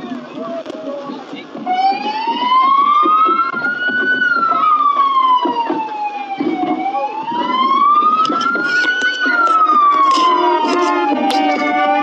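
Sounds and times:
engines rumbling: 0.0s - 12.0s
siren wailing: 1.6s - 12.0s.

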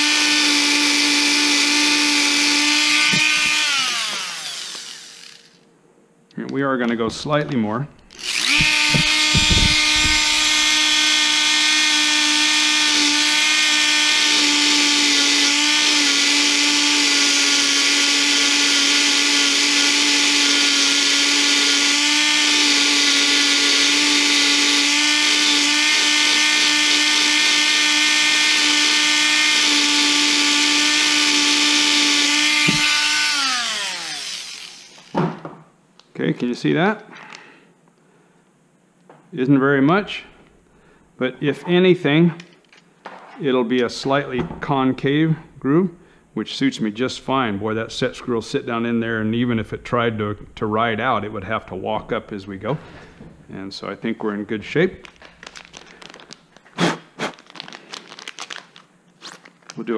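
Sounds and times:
rotary tool cutoff wheel whine: 0.0s - 5.6s, 8.0s - 35.2s
rotary tool spinning down: 2.9s - 5.6s, 8.1s - 11.0s, 32.4s - 35.2s.

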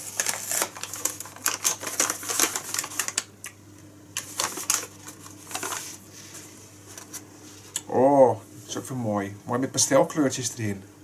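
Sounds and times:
paper bag crinkling: 0.0s - 3.3s, 4.2s - 7.2s.

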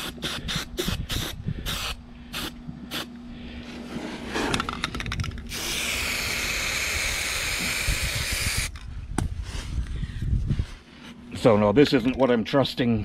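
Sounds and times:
aerosol spray can hissing: 0.0s - 3.1s, 5.5s - 8.7s.

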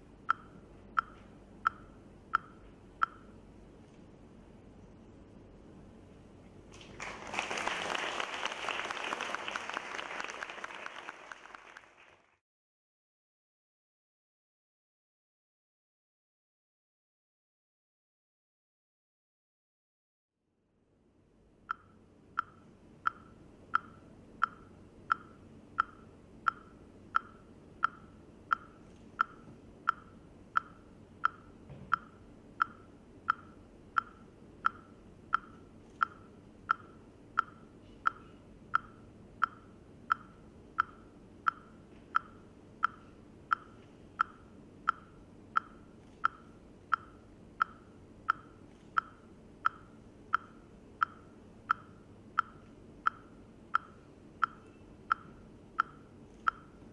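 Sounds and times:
faint low hum: 0.0s - 12.0s, 20.6s - 56.9s
sharp metronome ticks: 0.2s - 3.4s, 21.7s - 56.9s.

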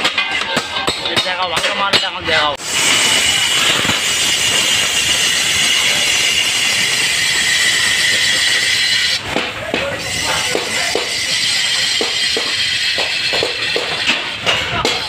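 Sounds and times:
cutting tool scraping spinning metal: 2.6s - 9.4s, 10.0s - 14.6s.

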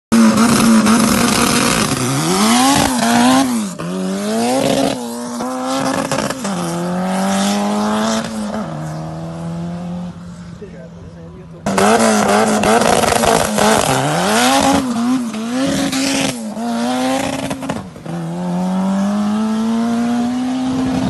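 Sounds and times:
race car engine revving: 0.1s - 21.0s.

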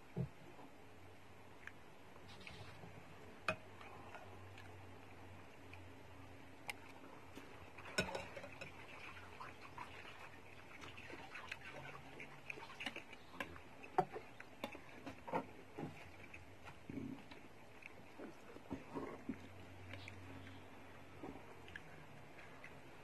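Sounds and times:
chewing: 6.6s - 23.0s.

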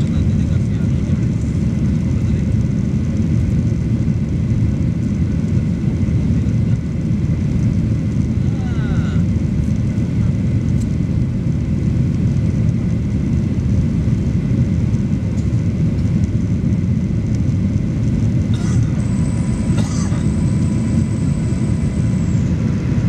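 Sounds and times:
jet engine roar in cabin: 0.0s - 23.0s.

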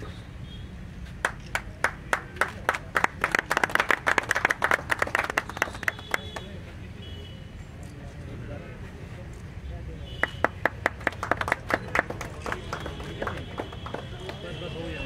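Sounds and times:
people clapping: 1.2s - 6.6s, 10.2s - 15.0s.

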